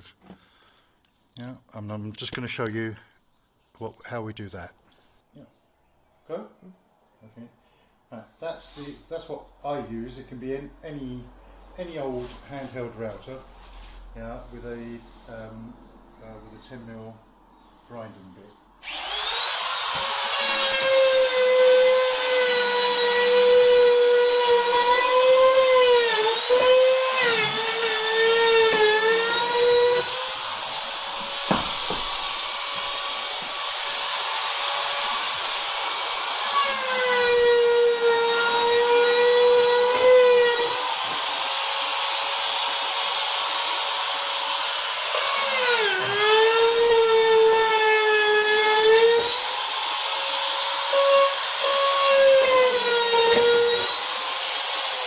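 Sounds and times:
router grinding with high whine: 0:18.8 - 0:55.0.

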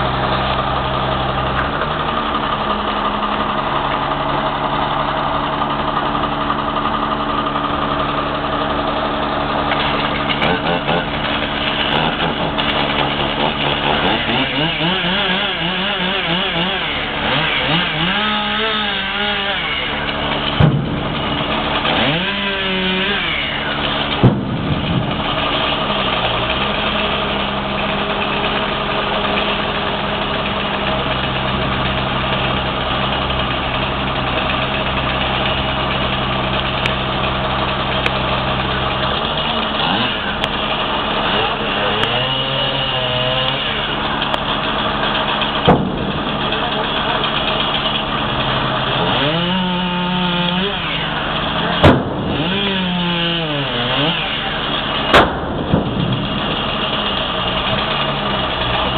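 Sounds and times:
truck engine running: 0:00.0 - 0:58.9
sharp knocks: 0:20.4 - 0:22.4, 0:24.0 - 0:25.8, 0:45.4 - 0:46.6, 0:51.8 - 0:52.8, 0:55.1 - 0:58.0.

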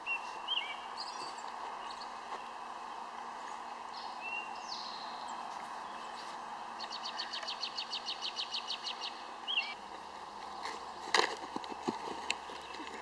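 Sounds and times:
bird chirps: 0:00.0 - 0:02.6, 0:03.9 - 0:09.8
background hiss: 0:00.0 - 0:13.0.

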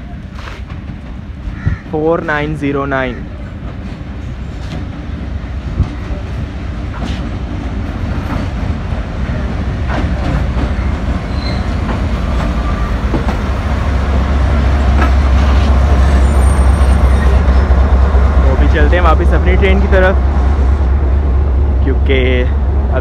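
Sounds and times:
locomotive engine drone: 0:03.3 - 0:23.0
wheels clacking over rail joints: 0:06.8 - 0:18.5.

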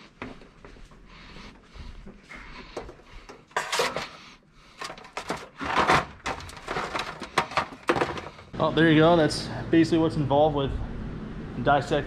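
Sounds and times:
plastic parts and hoses rustling: 0:02.0 - 0:08.6.

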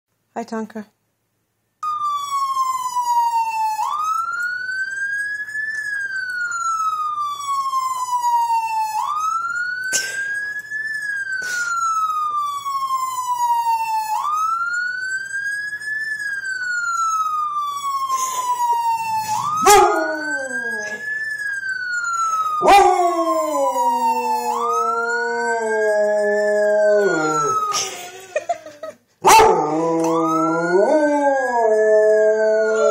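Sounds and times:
siren wailing: 0:01.8 - 0:32.9
dog howling: 0:19.6 - 0:21.0.

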